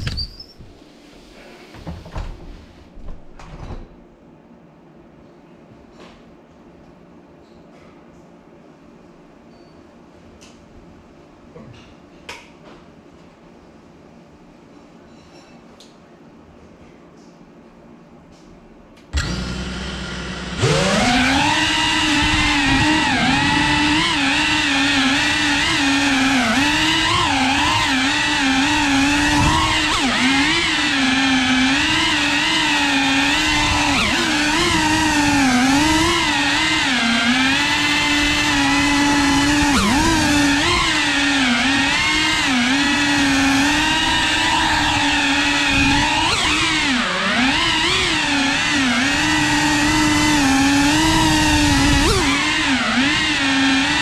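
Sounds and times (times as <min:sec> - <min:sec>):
drone propellers whining: 0:19.2 - 0:54.0.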